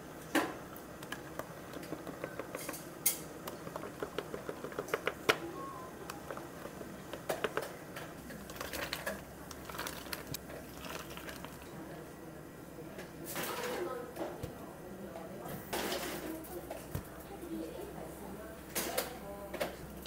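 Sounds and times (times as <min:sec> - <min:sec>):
spoon stirring in plastic cups: 0:01.0 - 0:11.7.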